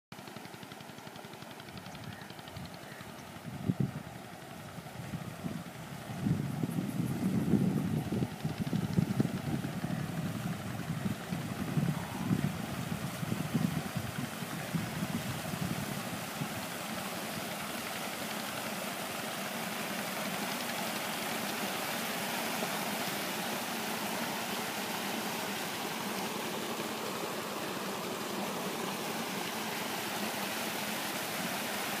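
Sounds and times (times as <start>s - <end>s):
wind buffeting microphone: 3.4s - 16.8s.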